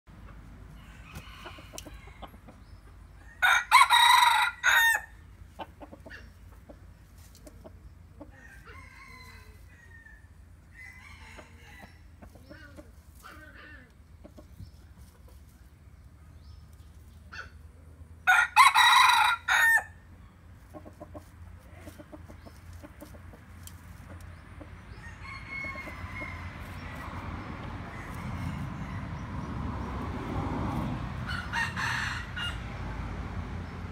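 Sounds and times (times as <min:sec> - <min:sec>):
rooster crowing: 0:00.7 - 0:02.3, 0:03.2 - 0:05.2, 0:08.3 - 0:12.0, 0:18.2 - 0:20.0, 0:24.9 - 0:27.1, 0:27.7 - 0:29.5, 0:31.2 - 0:33.0
soft clucks: 0:05.5 - 0:08.4, 0:11.4 - 0:15.7, 0:20.6 - 0:25.0.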